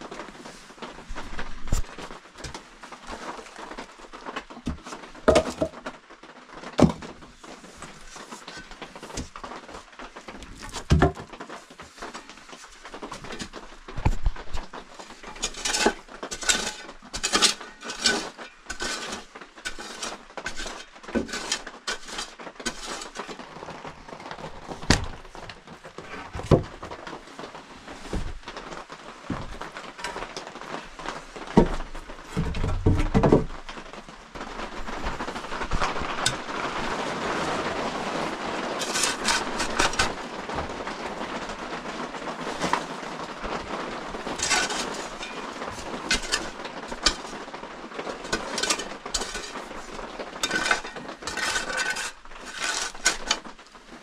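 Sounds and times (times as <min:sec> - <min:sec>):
hand tool knocks and scrapes: 0:04.7 - 0:05.8, 0:15.4 - 0:23.4, 0:44.4 - 0:47.4, 0:48.3 - 0:49.7, 0:50.4 - 0:53.5.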